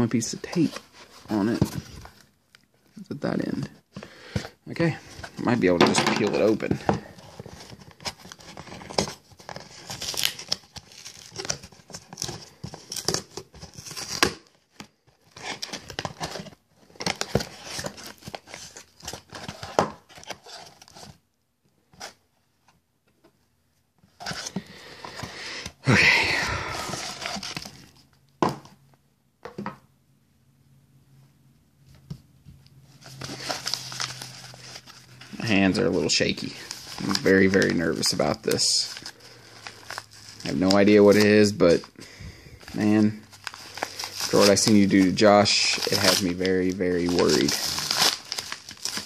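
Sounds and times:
cardboard box tearing open: 7.5s - 14.4s, 45.7s - 49.0s
paper rustling and scraping: 32.8s - 41.9s, 42.6s - 49.0s.

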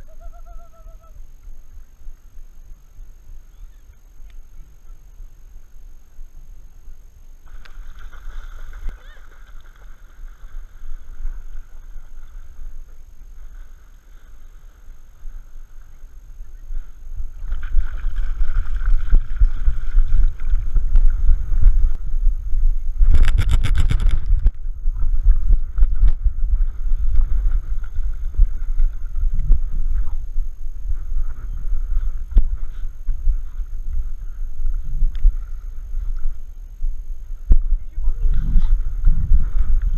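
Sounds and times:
wind buffeting camera: 16.5s - 39.9s
water sloshing and splashing: 17.4s - 21.2s.

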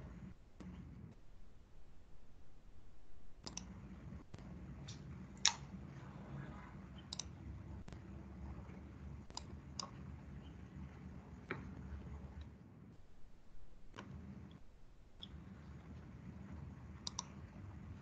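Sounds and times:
low steady hum: 0.0s - 18.0s
computer mouse clicks: 3.4s - 3.8s, 4.8s - 5.7s, 7.0s - 8.1s, 9.2s - 10.5s, 17.0s - 17.4s.

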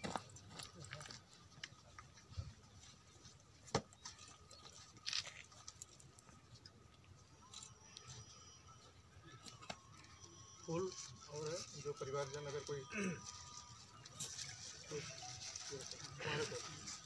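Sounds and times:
rustles: 10.9s - 17.0s.

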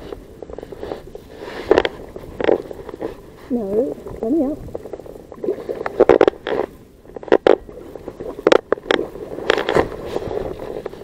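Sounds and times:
fabric rubbing on microphone: 0.0s - 4.0s, 9.0s - 11.0s.

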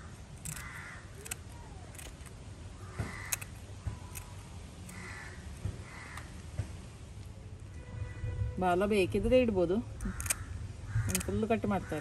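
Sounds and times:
crows cawing: 0.0s - 1.4s, 2.7s - 3.6s, 4.9s - 6.4s, 10.0s - 12.0s.

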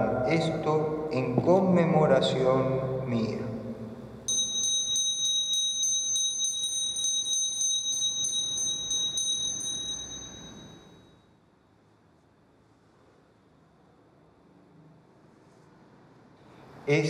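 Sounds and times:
altar bell ringing: 4.3s - 11.3s.

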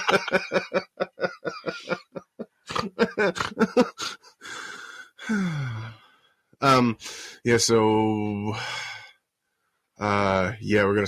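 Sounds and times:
person laughing: 0.0s - 4.4s
breathy exhale: 4.4s - 6.2s.

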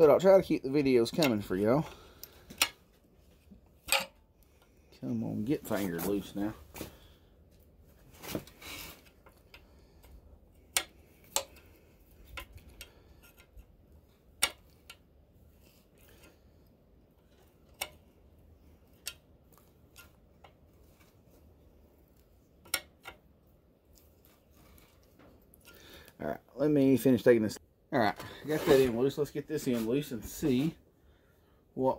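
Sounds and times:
wrench clicking and scraping metal: 3.8s - 4.2s.

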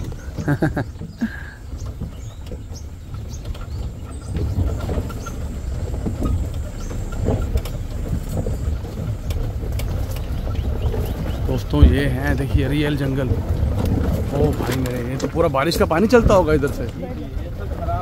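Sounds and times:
jeep engine rumble: 0.0s - 18.0s
knocks and rattles: 0.0s - 18.0s.

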